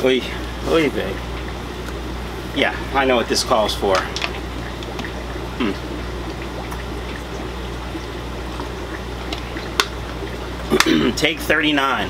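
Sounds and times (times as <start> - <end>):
aquarium filters bubbling: 0.0 - 12.0
low electrical hum: 0.0 - 12.0
vocal murmur: 5.5 - 6.0.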